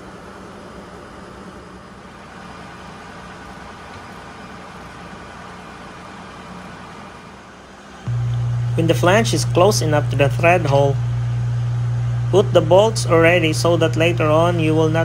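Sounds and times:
engine room machinery drone: 0.0 - 15.0
faint low hum: 8.1 - 15.0.

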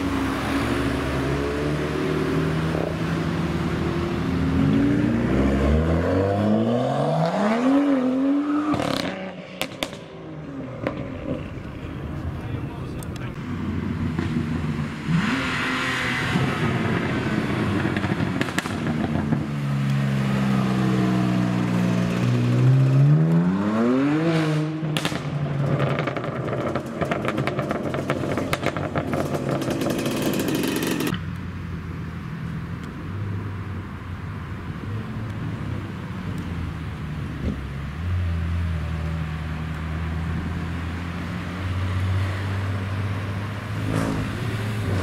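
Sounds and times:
car engine rumbling low: 9.6 - 15.3, 24.8 - 41.7
exhaust crackling and popping: 16.6 - 20.0, 24.9 - 31.5.

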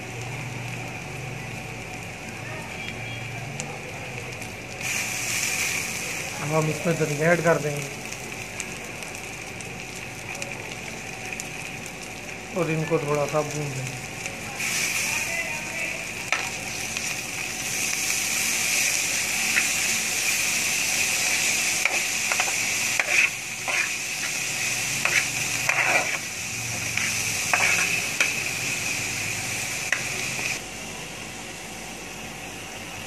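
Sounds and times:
vegetables sizzling in oil: 0.0 - 33.0
metal spoon scraping a pan: 21.2 - 26.3, 26.9 - 28.4.

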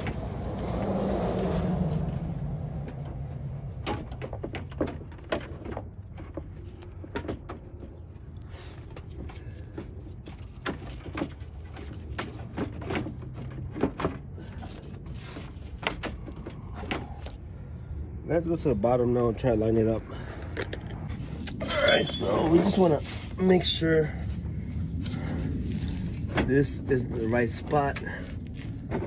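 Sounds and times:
low steady rumble: 14.3 - 29.0.

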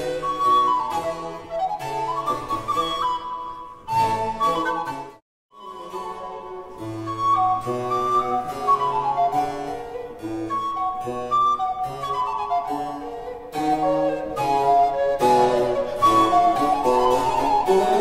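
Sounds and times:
recorder melody: 0.0 - 18.0.

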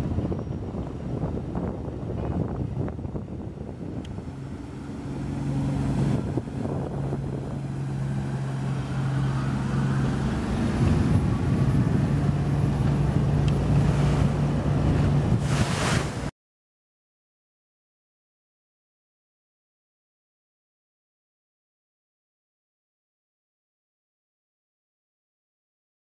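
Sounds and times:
boat engine drone: 0.0 - 16.3
wind and water rushing: 0.0 - 16.3.

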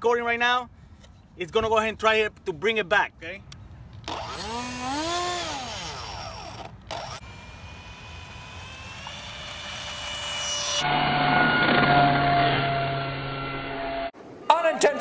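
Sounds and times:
electric ducted fan whining: 4.1 - 13.2.

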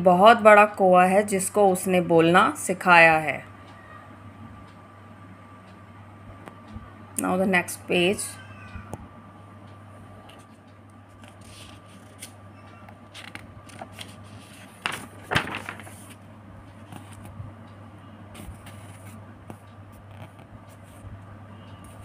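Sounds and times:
steady low hum: 0.0 - 22.0
page flipping crackles: 11.1 - 12.4, 13.1 - 16.2, 16.8 - 17.3, 18.4 - 19.2, 20.0 - 20.8
paper page rustling: 11.2 - 12.4, 13.1 - 16.2.

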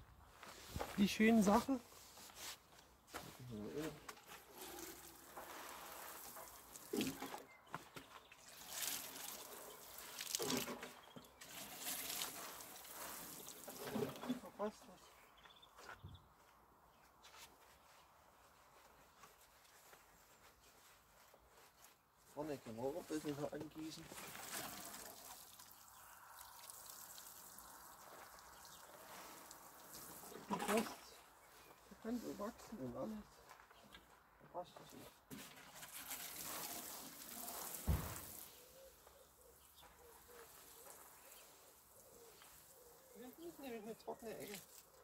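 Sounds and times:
water pattering onto soil: 3.2 - 14.2, 23.0 - 30.9, 35.8 - 45.0.

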